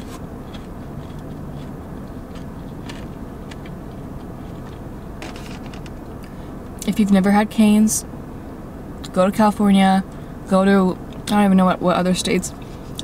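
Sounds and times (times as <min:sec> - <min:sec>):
person chewing food: 0:00.0 - 0:05.2
low hum inside a car: 0:00.0 - 0:13.0.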